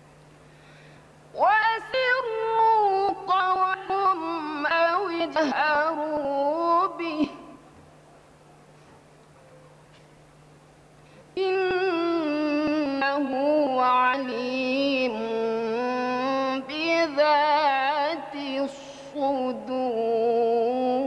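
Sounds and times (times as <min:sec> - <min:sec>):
woman chanting recitation: 0:01.4 - 0:07.6, 0:11.4 - 0:21.0.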